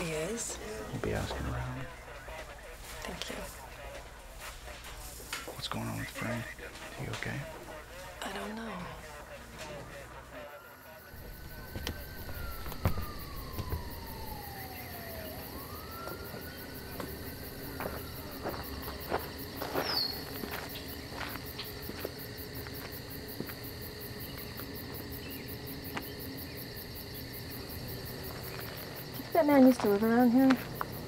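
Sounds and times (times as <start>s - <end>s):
crickets chirring: 0.0s - 31.0s
police siren wailing: 9.5s - 21.9s
footsteps on gravel: 17.0s - 23.6s, 28.2s - 31.0s.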